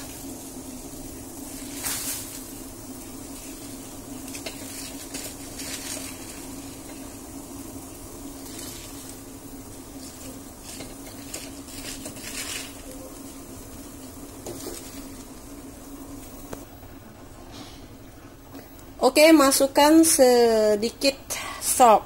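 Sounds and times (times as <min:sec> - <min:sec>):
water boiling: 0:00.0 - 0:22.0.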